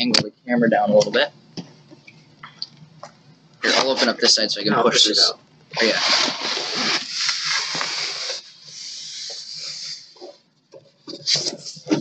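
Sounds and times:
cardboard box scraping and rubbing: 5.8 - 10.2.

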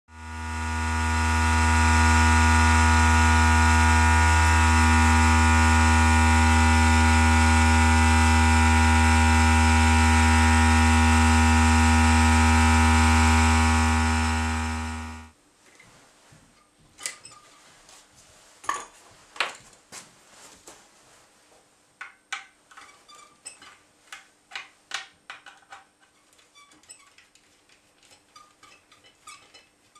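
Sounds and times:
engine humming low: 0.1 - 15.3.

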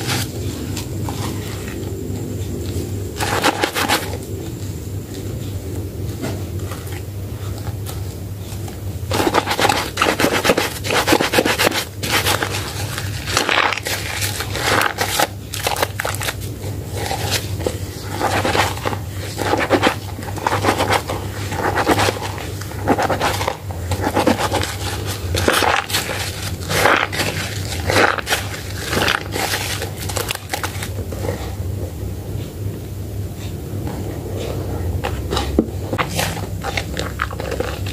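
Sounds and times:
wet soap squishing: 9.2 - 31.4.

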